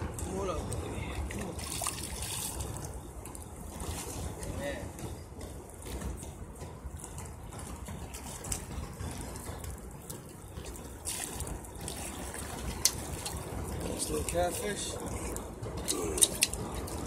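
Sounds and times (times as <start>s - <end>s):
river water lapping on rocks: 8.2s - 17.0s.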